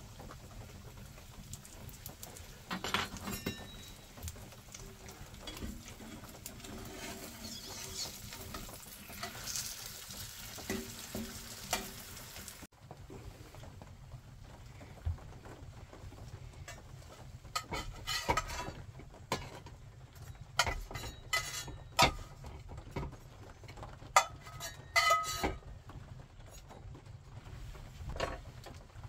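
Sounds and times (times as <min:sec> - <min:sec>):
metal spatula scraping skillet: 0:02.7 - 0:12.3, 0:17.6 - 0:22.4, 0:24.2 - 0:25.6.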